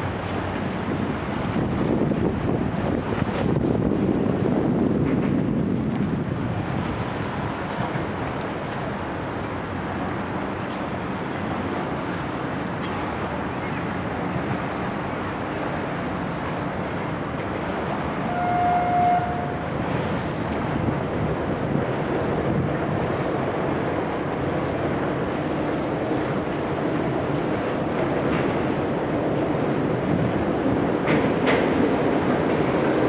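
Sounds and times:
rumble of road and rail traffic: 0.0s - 33.0s
short horn-like note: 18.3s - 19.5s.

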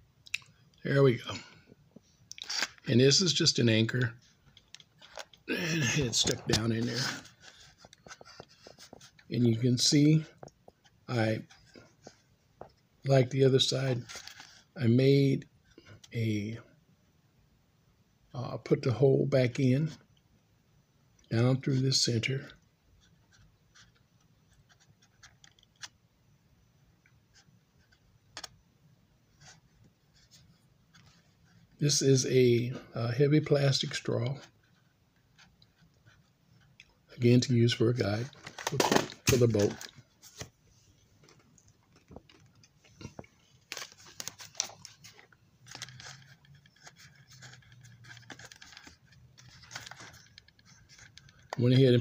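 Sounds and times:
plastic model being handled: 1.9s - 14.8s, 21.3s - 26.0s, 27.0s - 28.6s, 29.3s - 32.2s, 33.5s - 52.0s.

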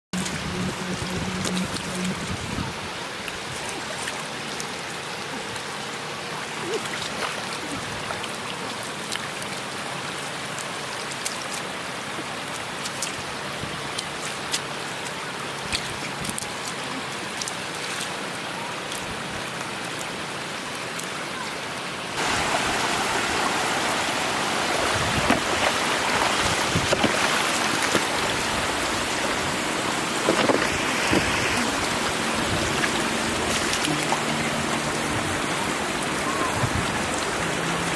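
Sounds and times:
floodwater running across road: 0.2s - 37.9s
fish thrashing in water: 24.8s - 29.5s.

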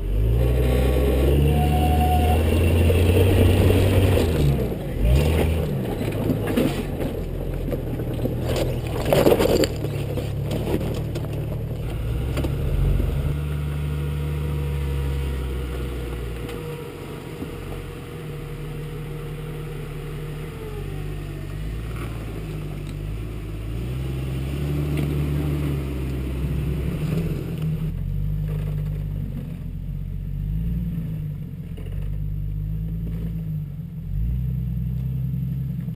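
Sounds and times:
tyres knocking and scraping on rock: 5.2s - 12.6s
engine running at low revs: 10.2s - 35.9s.

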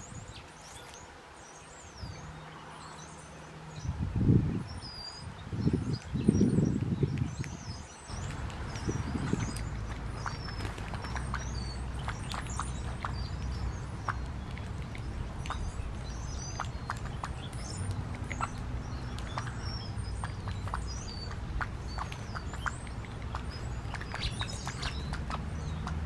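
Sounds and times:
birds pecking seed clicks: 0.4s - 1.1s, 5.9s - 26.0s.

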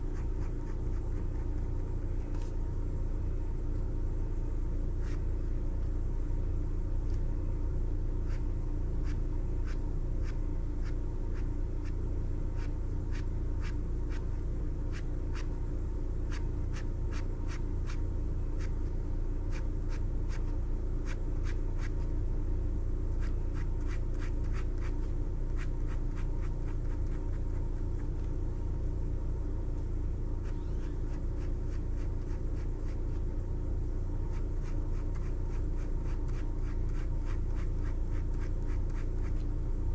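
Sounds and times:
steady low hum: 0.0s - 39.9s
pen scratching on paper: 34.3s - 39.4s.

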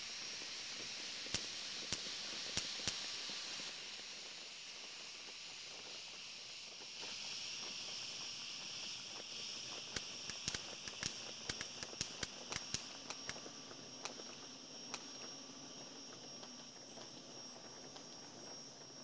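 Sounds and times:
steady high hiss: 0.0s - 19.0s
distant fireworks popping: 9.3s - 18.4s.

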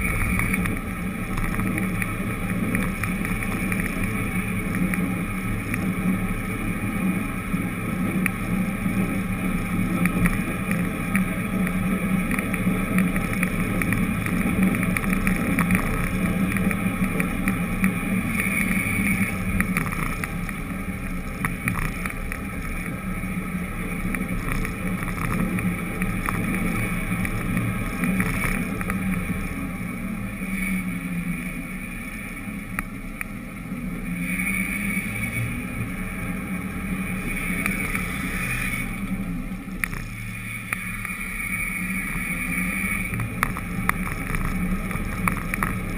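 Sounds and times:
vehicle driving on asphalt: 0.0s - 45.9s.

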